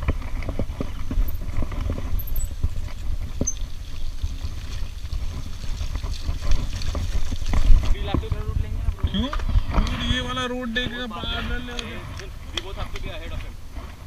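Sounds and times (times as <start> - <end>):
bike clicks and rattles: 0.0 - 8.5
bike tyre rumble on dirt: 0.0 - 14.0.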